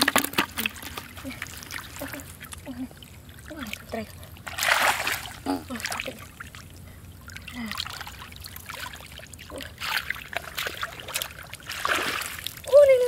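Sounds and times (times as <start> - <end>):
muddy water sloshing and splashing: 0.0 - 13.0.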